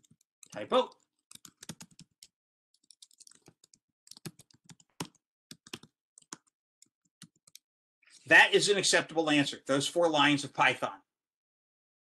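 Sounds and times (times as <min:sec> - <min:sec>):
typing on computer keyboard: 0:01.2 - 0:07.6.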